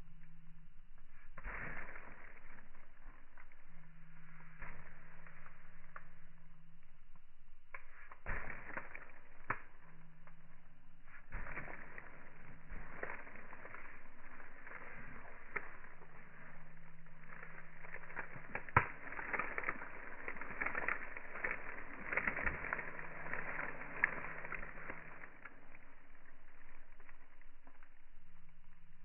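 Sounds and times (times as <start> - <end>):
dry palm fronds rustling: 11.0 - 27.1.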